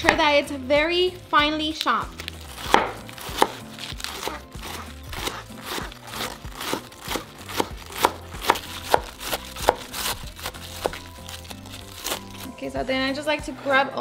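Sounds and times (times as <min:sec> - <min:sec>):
knife chopping on wooden board: 0:02.4 - 0:12.5.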